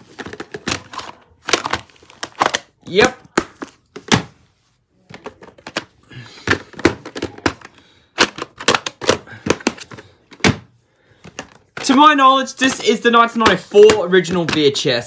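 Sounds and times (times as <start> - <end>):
plastic case clicks and snaps: 6.5 - 10.6.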